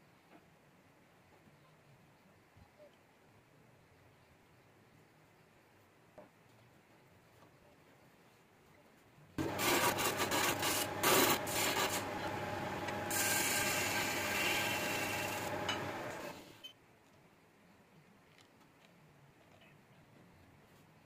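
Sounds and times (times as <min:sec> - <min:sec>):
chisel scraping wood on lathe: 0:09.4 - 0:16.6.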